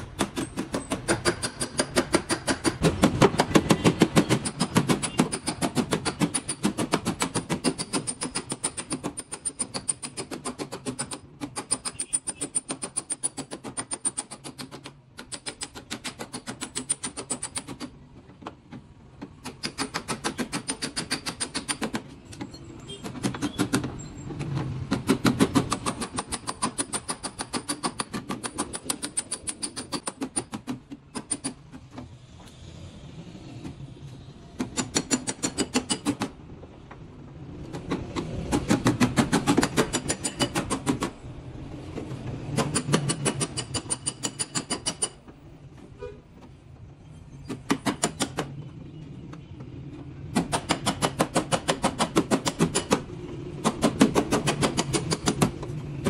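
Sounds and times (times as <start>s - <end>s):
hammer tapping on sheet metal: 0.0s - 17.9s, 19.2s - 22.1s, 23.0s - 31.7s, 34.6s - 36.4s, 37.7s - 41.1s, 42.4s - 45.3s, 50.3s - 55.8s.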